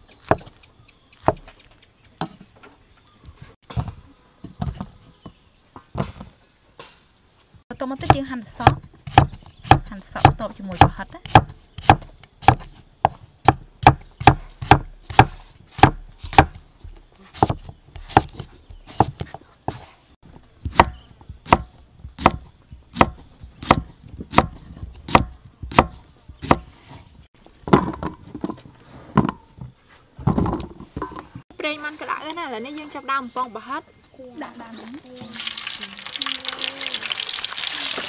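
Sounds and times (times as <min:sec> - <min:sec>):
cleaver chopping on wooden board: 0:08.0 - 0:16.6, 0:17.3 - 0:19.8, 0:20.7 - 0:26.8.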